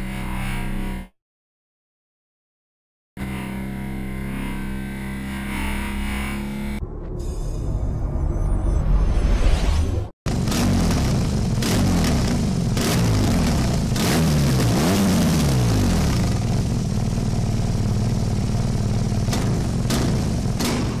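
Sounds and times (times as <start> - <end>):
motorcycle engine revving: 3.2 - 6.8, 10.3 - 21.0.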